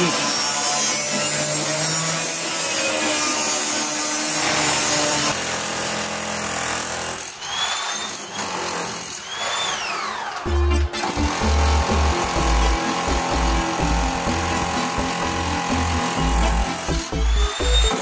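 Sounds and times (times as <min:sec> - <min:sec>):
angle grinder cutting steel: 0:00.0 - 0:18.0
power tool motor whining: 0:07.2 - 0:18.0.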